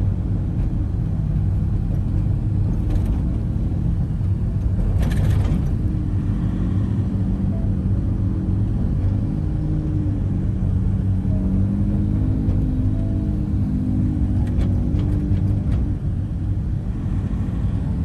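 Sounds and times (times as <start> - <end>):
vehicle rumble from inside: 0.0 - 18.0.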